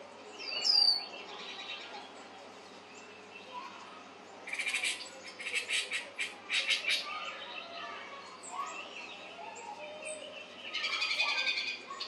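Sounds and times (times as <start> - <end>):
rapid harsh chattering calls: 4.5 - 7.1
birds chirping on television: 6.6 - 12.0.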